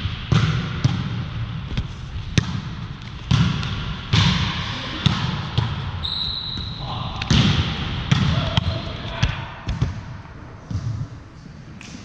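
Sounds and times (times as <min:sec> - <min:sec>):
volleyball slaps and thuds: 0:00.0 - 0:11.0
steady hall rumble: 0:06.7 - 0:12.0.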